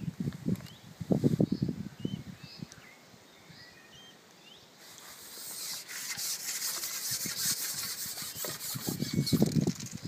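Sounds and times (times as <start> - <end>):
small birds chirping: 0.0 - 5.3.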